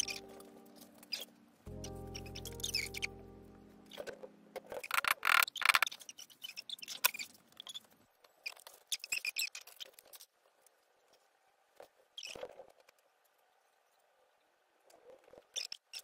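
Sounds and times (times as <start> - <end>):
held music chord: 0.0 - 4.8.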